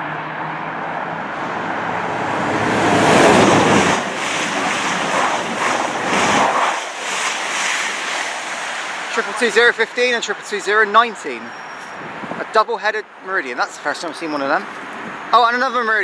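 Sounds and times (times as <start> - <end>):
train passing at speed: 0.2 - 9.5
rushing air: 1.0 - 10.6, 11.8 - 12.5.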